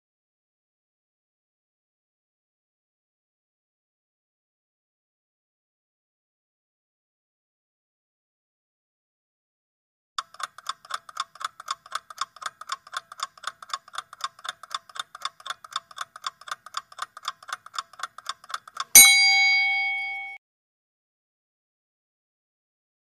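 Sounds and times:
clock ticking quickly: 10.2 - 20.4
loud bell ding: 19.0 - 20.4.

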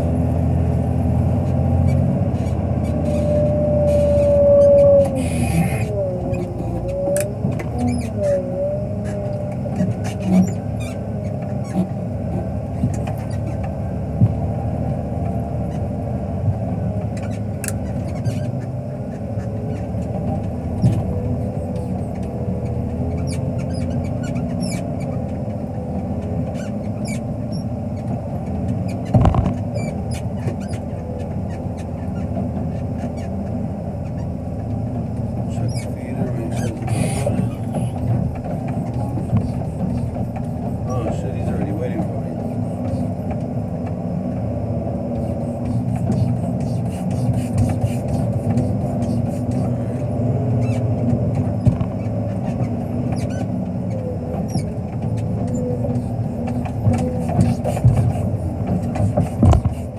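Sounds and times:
clunks and rattles: 0.0 - 59.9
diesel engine running: 0.0 - 59.9
wavering whine: 2.5 - 12.7.

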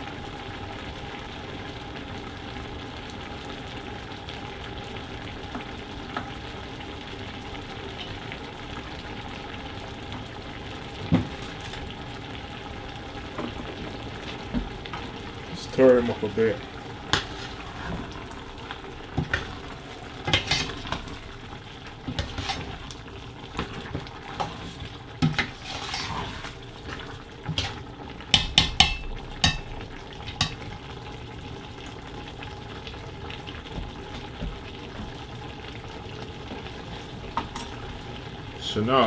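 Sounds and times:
low sizzle of cooking: 0.0 - 39.0
metal spoon scraping a pot: 20.3 - 20.9, 25.4 - 26.6
sharp knocks on pot: 28.3 - 29.7.

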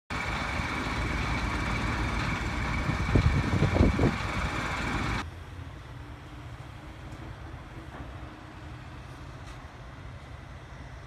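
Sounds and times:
fire engine pump running: 0.1 - 5.2.

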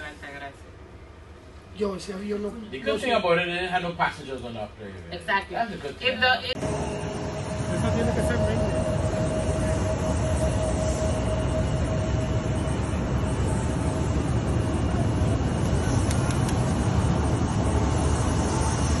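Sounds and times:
steady whine: 6.0 - 19.0
jet aircraft running: 6.4 - 19.0.

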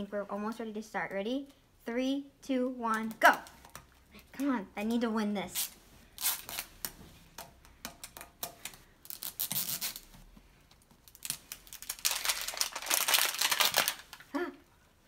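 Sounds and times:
wrapping being torn open: 9.0 - 10.2, 10.8 - 14.4.

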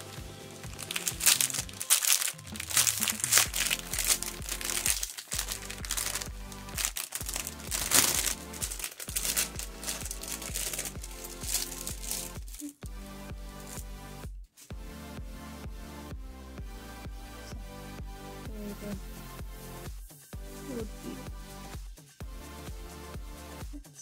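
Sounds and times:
aluminium foil crinkling: 0.0 - 12.7
background music: 0.0 - 24.0.

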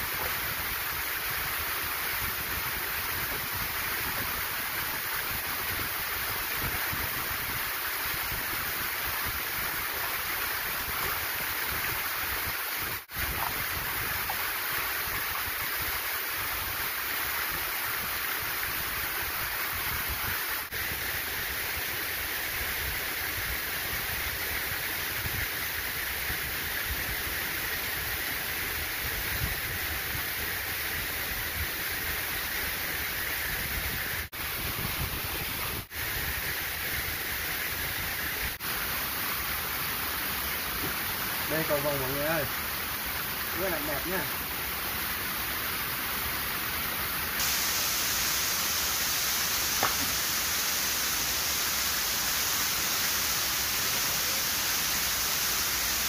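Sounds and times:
waterfall rushing: 29.8 - 56.0.

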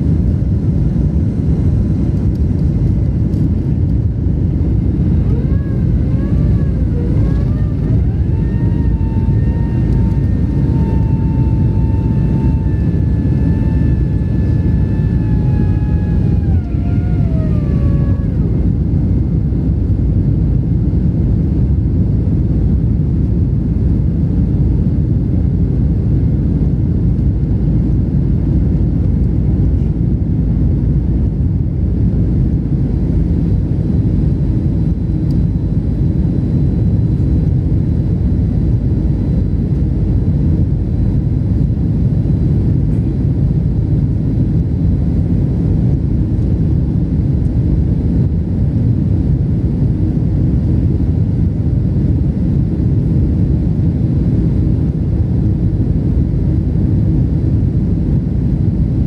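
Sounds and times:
jet engines roaring: 0.0 - 20.9
engine whine rising in pitch: 0.3 - 20.4.

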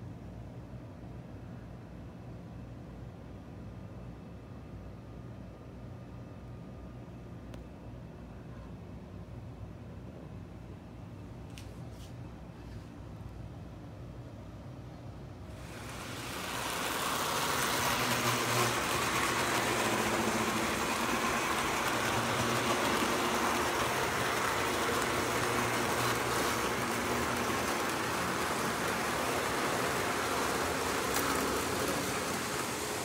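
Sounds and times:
model train running: 15.5 - 33.0.

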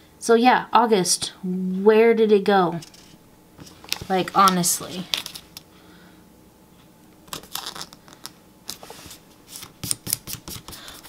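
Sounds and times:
paper rustles and scrapes: 2.8 - 5.4, 8.7 - 11.0.

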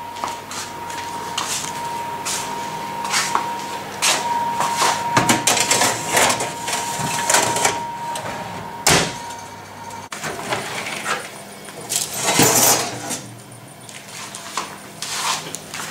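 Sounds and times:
oven door shutting: 5.1 - 9.5
metal baking tray clattering: 12.2 - 13.3.

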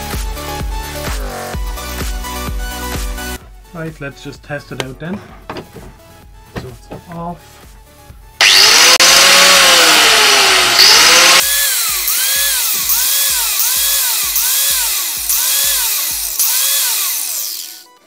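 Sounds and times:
angle grinder motor spinning up: 8.4 - 17.9.

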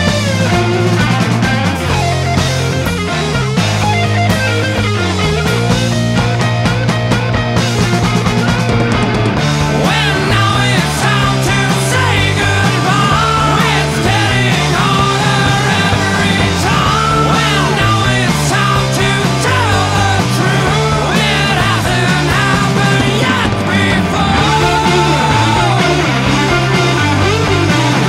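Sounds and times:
rock music with stepping bass line: 0.0 - 28.0.

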